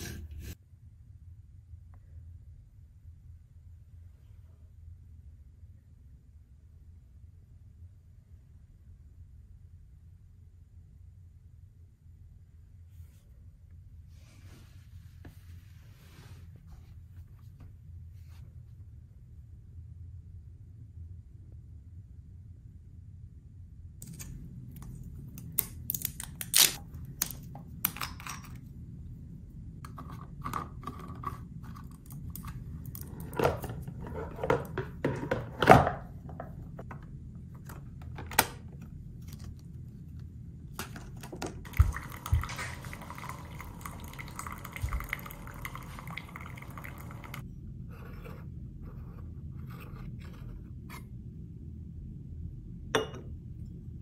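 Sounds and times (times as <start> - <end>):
coffee machine pumping: 41.7 - 47.4.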